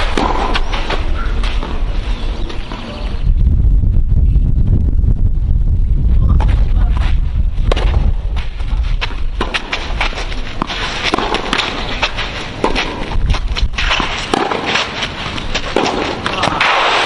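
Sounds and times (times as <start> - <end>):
ball bouncing: 0.0 - 1.9, 7.6 - 16.6
racket hitting tennis ball: 0.0 - 1.9, 7.7 - 17.0
wind rumble on microphone: 0.0 - 16.6
shoes sliding on clay: 8.4 - 17.0.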